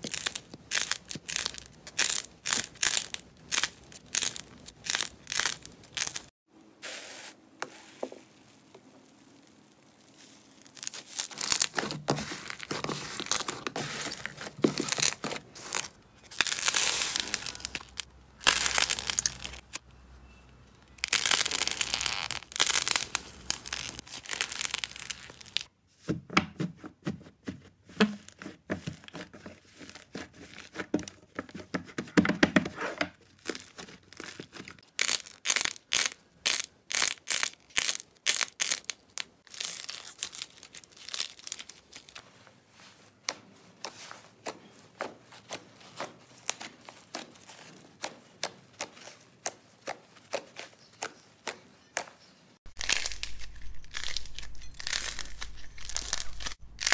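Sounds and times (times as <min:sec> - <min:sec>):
slime crackling and popping: 0:00.0 - 0:06.3, 0:08.4 - 0:19.8, 0:20.9 - 0:25.7, 0:33.4 - 0:42.2, 0:52.7 - 0:56.9
slime tearing and crinkling: 0:00.0 - 0:06.3, 0:08.2 - 0:19.8, 0:20.9 - 0:25.7, 0:33.2 - 0:51.1, 0:52.7 - 0:56.9.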